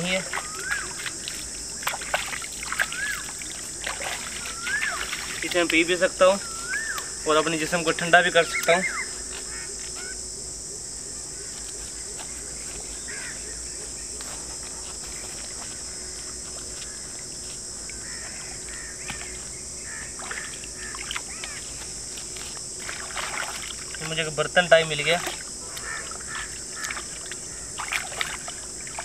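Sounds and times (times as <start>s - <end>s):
insect chorus drone: 0.0s - 29.0s
faint chirps and clicks: 6.4s - 7.1s.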